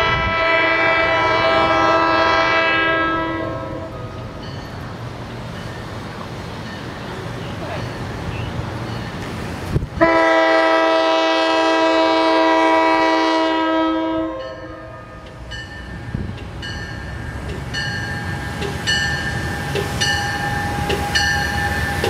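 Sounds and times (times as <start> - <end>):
train air horn blast: 0.0 - 4.1, 10.0 - 15.2
train rumbling: 0.0 - 22.0
bell ringing: 15.5 - 22.0.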